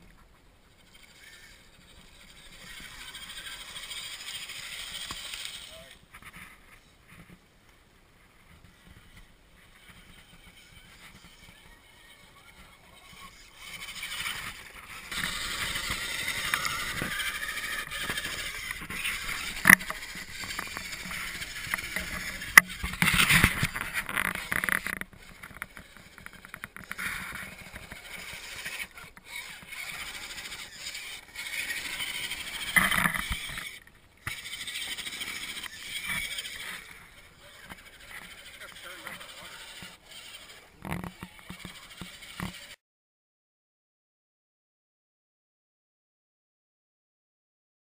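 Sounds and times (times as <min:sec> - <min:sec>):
electric motor and gears whining: 0:00.8 - 0:06.0, 0:08.6 - 0:42.8
tyres scraping on log: 0:12.8 - 0:42.8.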